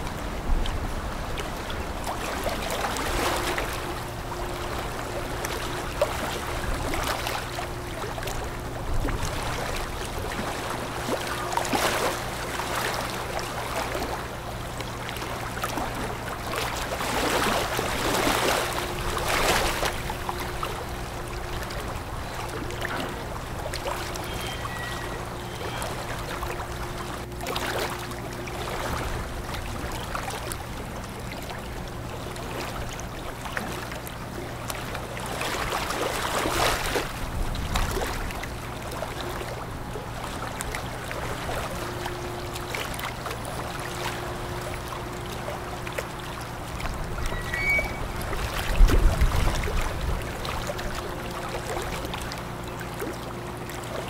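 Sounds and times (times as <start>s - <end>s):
ship engine drone: 0.0s - 54.0s.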